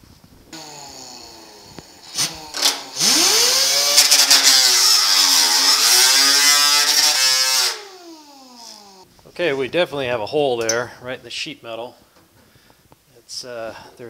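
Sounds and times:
angle grinder grinding metal: 0.5s - 9.1s.

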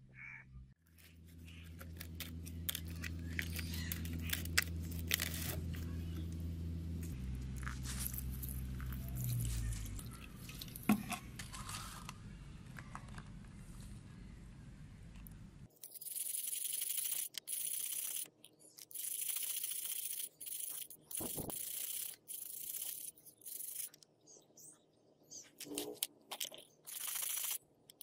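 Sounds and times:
low hum: 0.0s - 15.7s.

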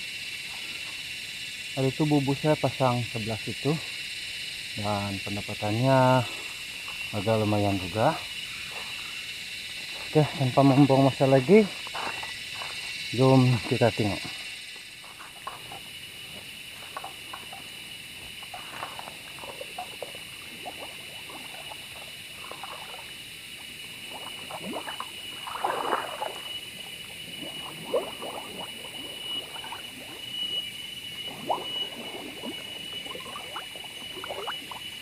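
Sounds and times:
steady high-pitched whine: 0.0s - 35.0s
water sloshing and splashing: 18.4s - 23.2s, 24.0s - 35.0s.

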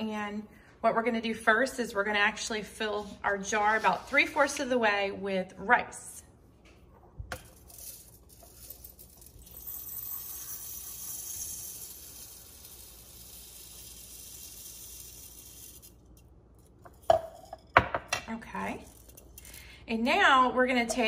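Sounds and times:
rice pouring into glass jar: 7.5s - 17.1s, 18.8s - 19.6s.

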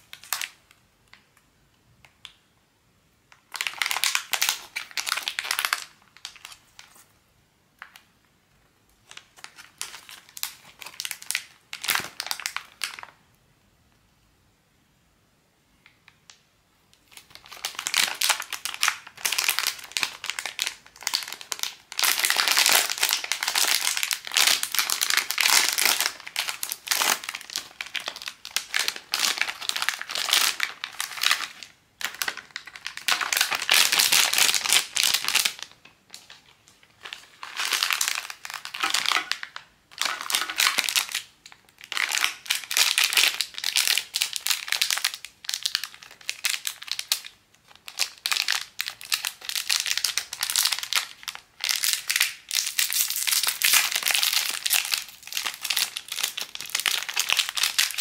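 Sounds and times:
packaging crinkling: 17.0s - 58.0s.

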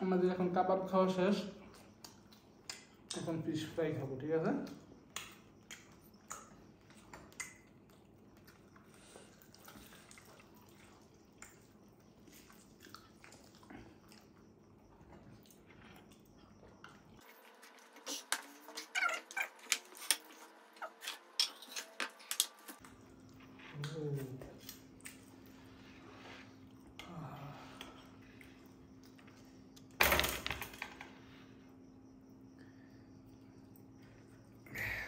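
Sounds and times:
wet mouth clicks and smacks: 4.6s - 8.6s
quiet chewing: 4.6s - 29.9s.

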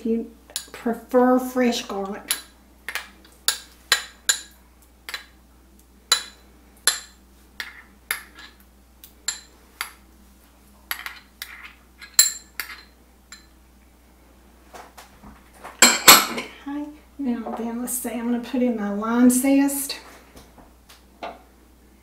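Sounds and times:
metal spoon clinking on glass bowl: 10.9s - 13.5s.

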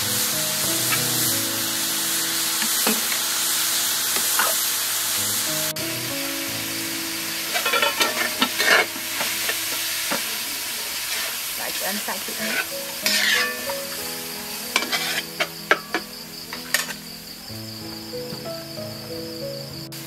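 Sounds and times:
meat sizzling in a wok: 0.0s - 20.0s
metal spatula scraping: 7.5s - 10.2s, 12.3s - 17.0s
spatula clinking against pan: 12.5s - 13.7s.

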